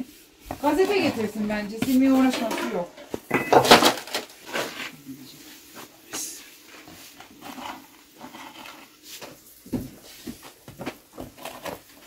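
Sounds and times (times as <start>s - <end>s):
wooden peel knocking and scraping: 7.4s - 12.0s.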